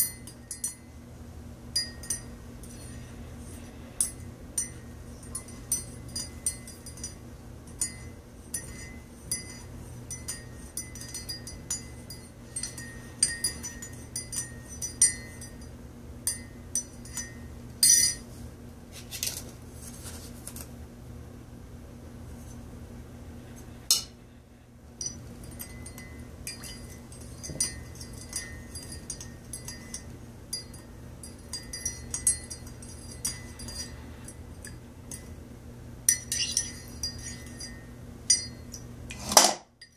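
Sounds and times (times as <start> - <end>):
teaspoon clinking in ceramic mug: 3.5 - 15.7, 25.0 - 34.0, 36.1 - 38.9.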